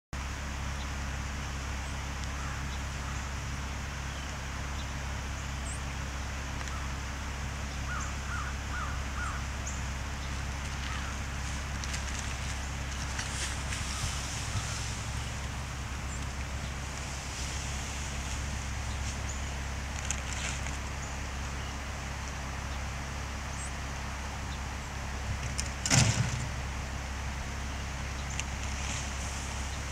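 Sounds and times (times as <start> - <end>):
low rumble: 1.7 - 29.9
harsh animal calls: 7.8 - 11.8.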